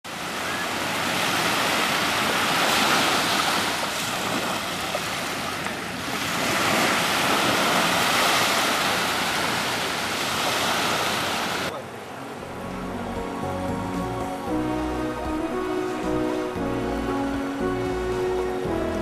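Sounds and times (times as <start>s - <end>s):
small waves on a pebble beach: 0.1s - 11.7s.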